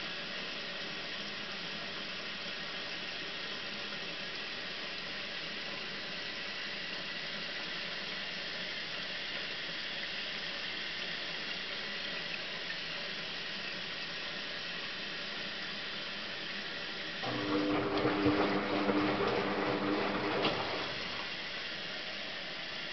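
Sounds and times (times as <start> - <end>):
water running into washing machine: 17.1 - 21.7.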